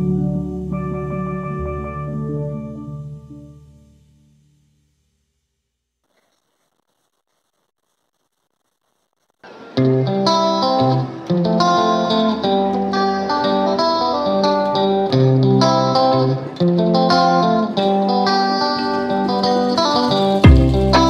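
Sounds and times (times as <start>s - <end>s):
plucked guitar tune: 9.5s - 21.0s.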